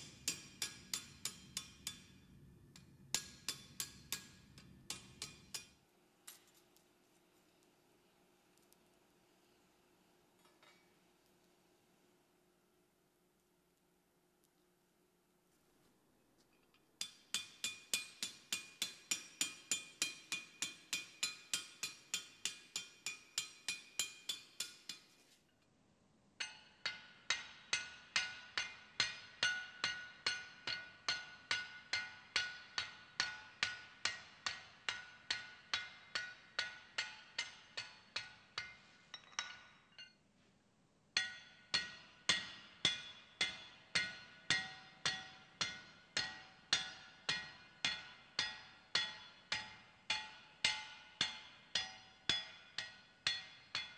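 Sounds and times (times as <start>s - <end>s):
hammer striking steel on anvil: 0.0s - 5.8s, 17.0s - 25.4s, 26.4s - 40.2s, 41.2s - 53.9s.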